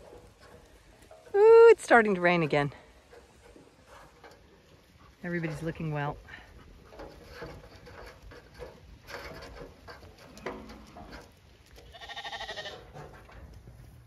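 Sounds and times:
knocks and rustling from flock: 0:00.0 - 0:14.0
lambs bleating: 0:11.8 - 0:12.8.

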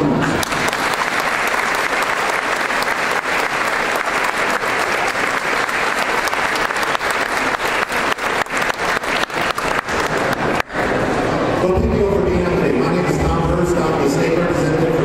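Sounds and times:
audience applauding: 0:00.0 - 0:11.2.

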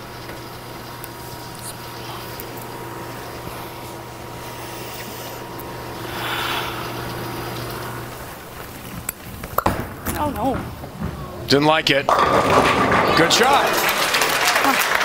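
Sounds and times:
low hum: 0:00.0 - 0:13.0
room noise: 0:00.0 - 0:15.0
bowling ball knocks on lane: 0:12.1 - 0:13.9.

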